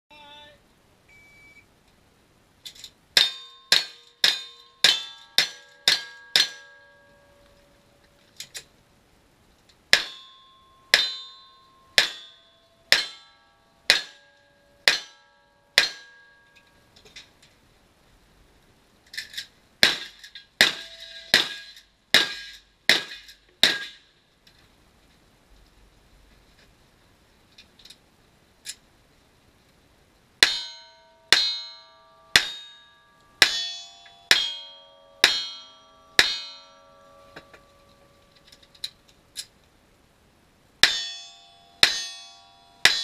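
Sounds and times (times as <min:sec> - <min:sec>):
electronic beep: 0:01.1 - 0:01.7
steel targets ringing: 0:03.2 - 0:08.2, 0:09.9 - 0:16.9, 0:19.8 - 0:24.1, 0:30.4 - 0:39.0, 0:40.8 - 0:43.0.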